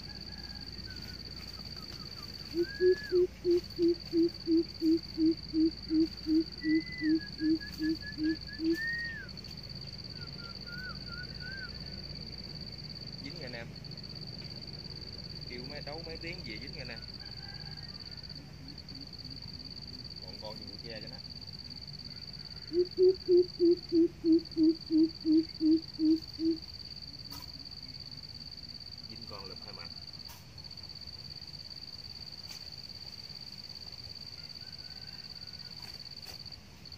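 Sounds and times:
low hooting bird calls: 0.0 - 9.3, 22.0 - 26.7
high-pitched insect trill: 0.0 - 36.9
bird whistling short phrases: 6.3 - 9.3.

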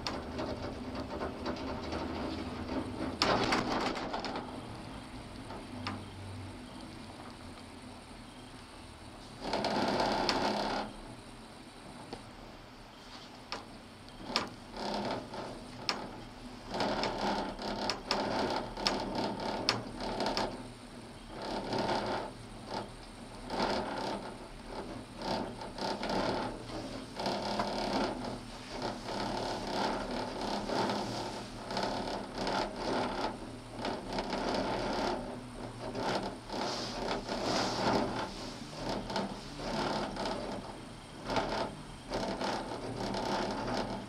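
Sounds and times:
cabin creaks and clicks: 0.0 - 4.8, 13.4 - 20.6, 21.3 - 44.0
gondola cabin rattling and whirring: 0.0 - 7.3, 9.4 - 12.1, 13.5 - 44.0.

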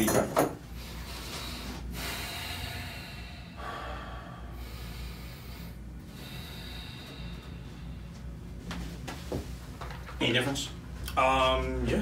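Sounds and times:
low room hum: 0.0 - 12.0
man breathing deeply: 0.7 - 8.6.

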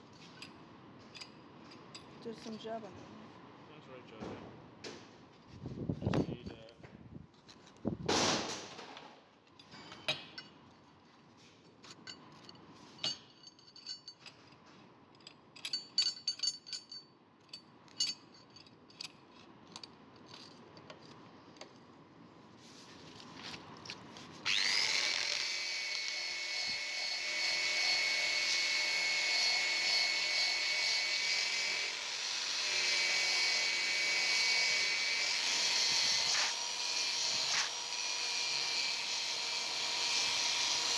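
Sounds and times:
tools knocking and clicking: 8.8 - 10.7, 11.8 - 21.8
electric drill whining: 24.4 - 40.9.

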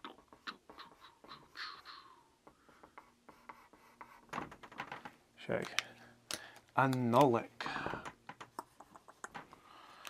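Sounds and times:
marker pen scratching on paper: 2.6 - 4.5.

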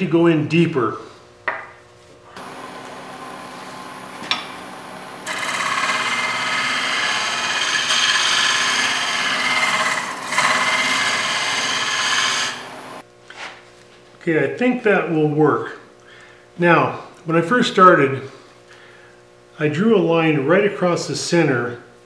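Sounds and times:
wood lathe humming: 2.4 - 13.0
scraper cutting spinning wood: 4.8 - 13.0.

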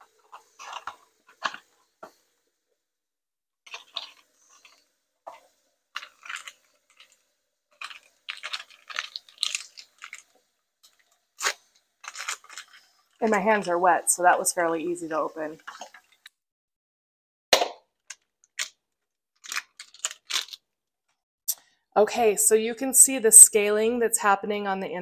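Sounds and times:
packaging crinkling: 0.2 - 1.7, 3.7 - 4.8, 6.0 - 13.8, 19.4 - 20.7.

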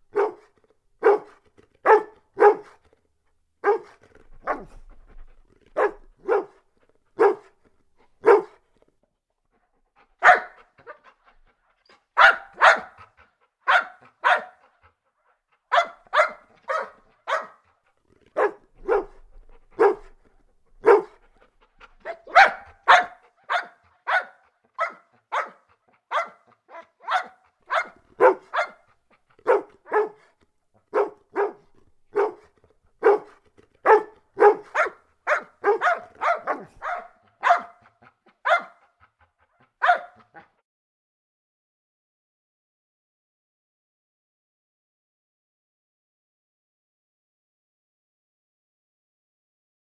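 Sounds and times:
dog barking: 0.1 - 2.8, 3.6 - 4.8, 5.8 - 6.6, 7.2 - 7.5, 8.2 - 8.6, 10.2 - 11.0, 12.2 - 13.0, 13.6 - 14.6, 15.7 - 17.6, 18.4 - 19.2, 19.8 - 20.2, 20.8 - 21.2, 22.0 - 30.3, 30.9 - 38.9, 39.8 - 40.5.

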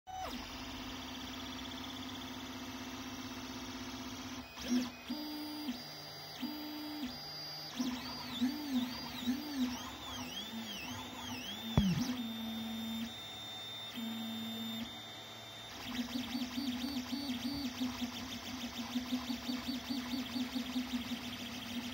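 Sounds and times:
stepper motors whining: 8.1 - 12.6.

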